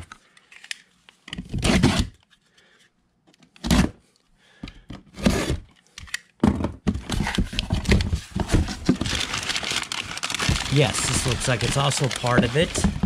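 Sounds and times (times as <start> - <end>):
cardboard flaps scraping: 7.0 - 13.0
paper packing rustling: 7.0 - 13.0
packing tape being slit: 9.1 - 12.9.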